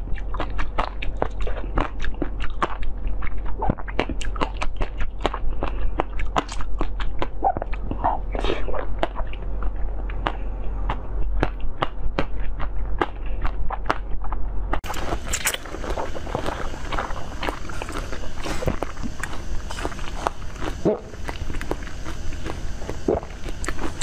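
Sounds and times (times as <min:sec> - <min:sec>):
crackly chewing clicks: 0:00.0 - 0:24.0
wet squelch: 0:14.8 - 0:24.0.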